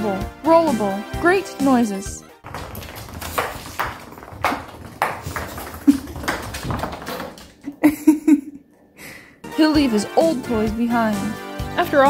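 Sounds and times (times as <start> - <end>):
acorn clattering on wooden floor: 2.4 - 7.6.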